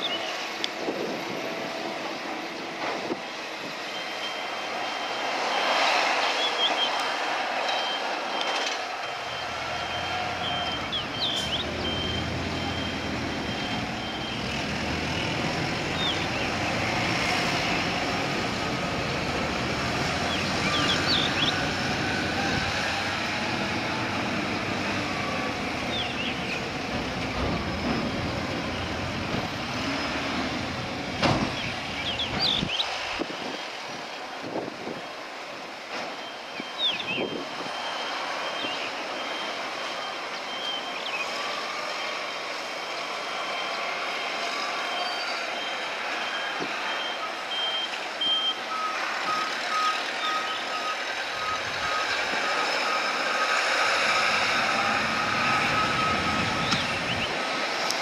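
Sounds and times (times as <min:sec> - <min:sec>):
diesel engine rumble: 0:00.0 - 0:58.0
high warning tone: 0:07.7 - 0:15.3.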